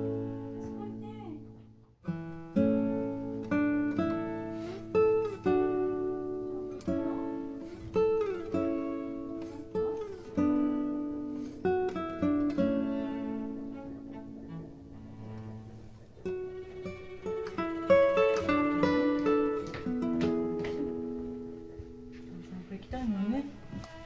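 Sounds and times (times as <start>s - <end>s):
acoustic guitar music: 0.0s - 24.0s.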